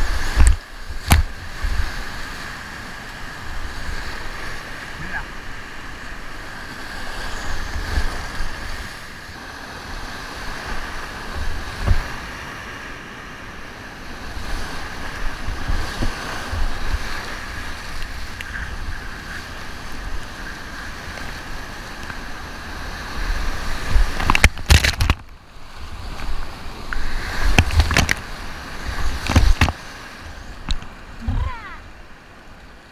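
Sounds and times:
whitewater rushing: 0.0s - 12.6s, 13.5s - 32.8s
water crashing: 0.0s - 32.8s
water splashing against boat: 6.0s - 12.8s, 14.1s - 32.2s.

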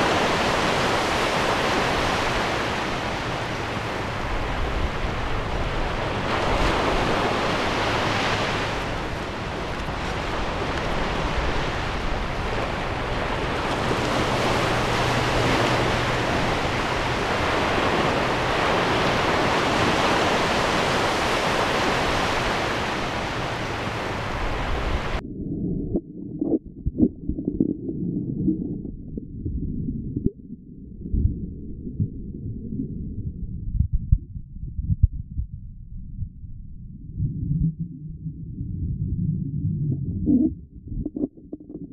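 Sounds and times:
muffled underwater rumble: 0.0s - 19.7s, 21.8s - 41.9s
small waves sloshing: 0.0s - 25.2s
wind noise on microphone: 0.0s - 41.9s.

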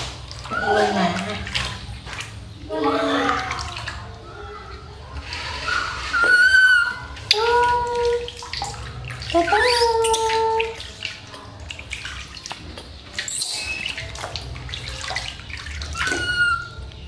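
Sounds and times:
water splashing in metal basin: 0.0s - 17.0s
baby monkey crying: 5.6s - 8.0s, 9.4s - 10.6s, 15.9s - 16.8s.

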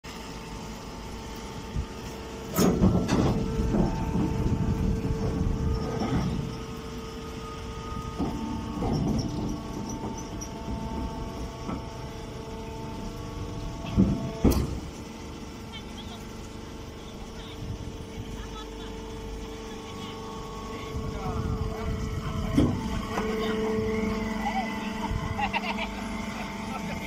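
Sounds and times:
hay baler machine hum: 0.1s - 27.0s
metallic knocks and clanks: 8.2s - 11.9s.

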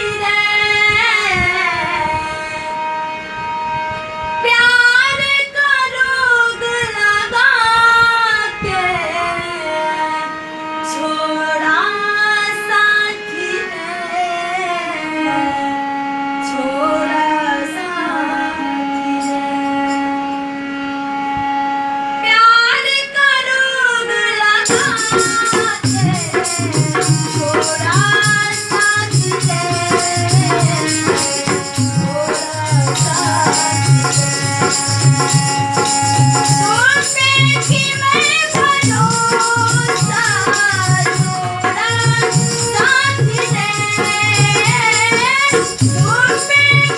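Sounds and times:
woman singing: 0.0s - 2.7s, 4.4s - 20.0s, 22.2s - 46.9s
harmonium chords: 0.0s - 46.9s.

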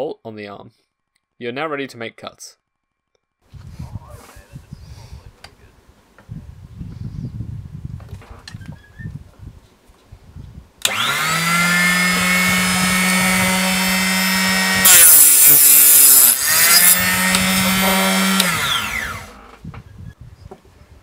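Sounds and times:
chop saw motor whine: 10.8s - 19.6s
saw blade cutting brass: 10.9s - 19.4s.

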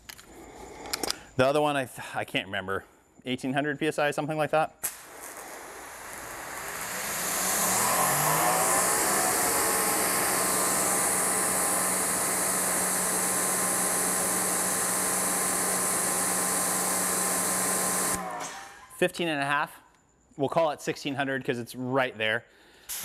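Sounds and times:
water spraying hiss: 4.8s - 14.0s
pressure washer motor whine: 5.0s - 18.9s.

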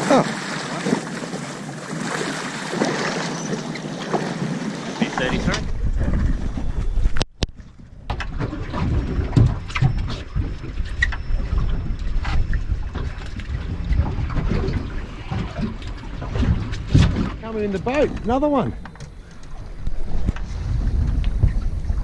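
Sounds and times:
wind buffeting microphone: 5.0s - 22.0s.

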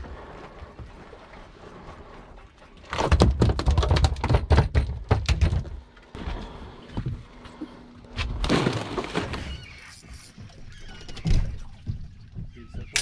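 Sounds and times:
fish thrashing on boat deck: 8.2s - 9.8s.

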